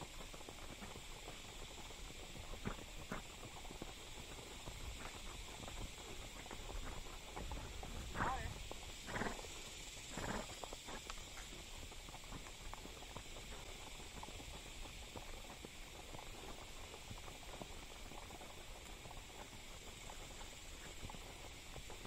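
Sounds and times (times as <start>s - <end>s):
horse hooves on dirt: 0.0s - 22.0s
steady high hiss: 0.0s - 22.0s.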